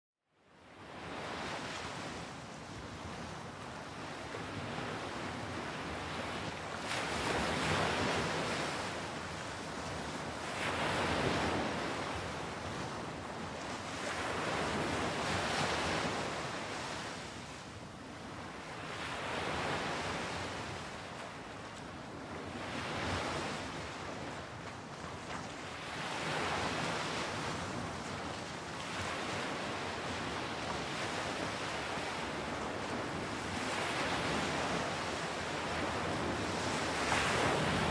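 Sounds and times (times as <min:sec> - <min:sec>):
ocean waves washing in: 0:25.6 - 0:37.9.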